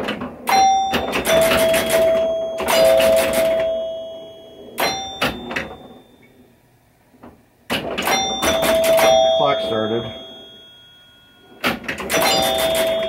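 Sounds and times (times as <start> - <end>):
sharp mechanical clacks: 0.0 - 3.8, 7.7 - 10.2, 11.6 - 13.0
chime bars ringing: 0.5 - 6.3, 8.1 - 13.0.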